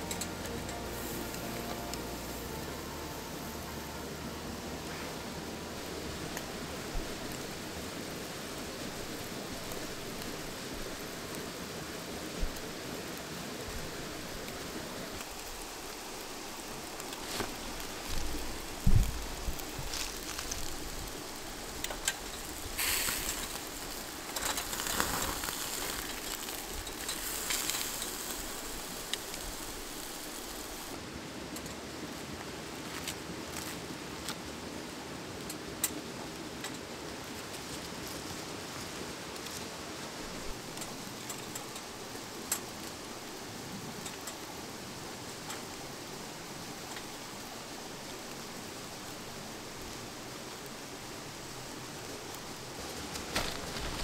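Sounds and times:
steak sizzling on grill: 0.0 - 11.2, 15.3 - 30.9
charcoal grill crackling: 0.0 - 31.0, 32.3 - 34.5, 35.4 - 54.0
river flowing: 0.0 - 54.0.

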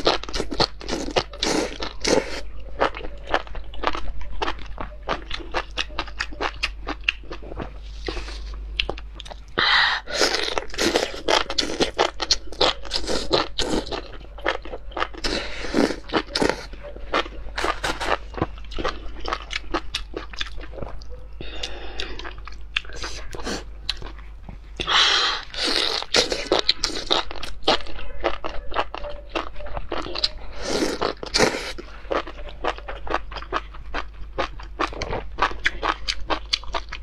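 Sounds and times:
wet chewing and crunching: 0.0 - 37.0
slurping: 10.0 - 19.6, 30.0 - 32.8.

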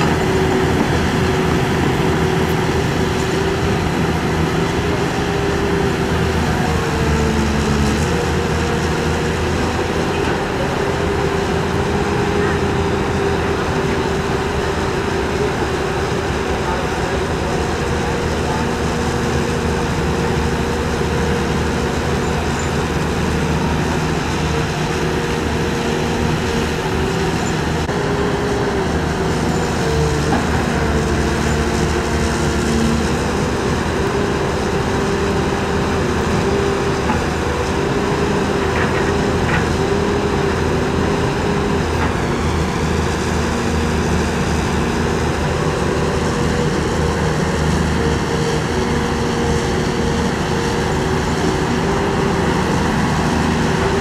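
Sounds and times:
excavator diesel engines running: 0.0 - 54.0.

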